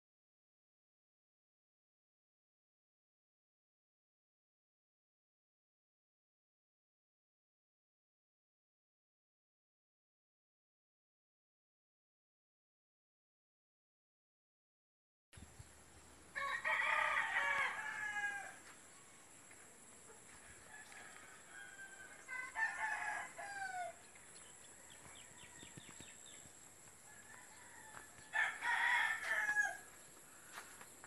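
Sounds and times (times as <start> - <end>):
rooster crowing: 16.3 - 18.7, 20.3 - 24.1, 24.8 - 26.4, 27.0 - 30.7.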